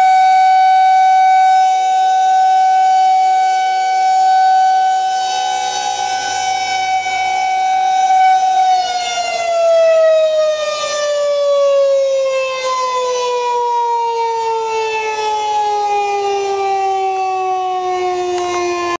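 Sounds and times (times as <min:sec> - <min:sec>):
warning siren winding down: 0:00.0 - 0:19.0.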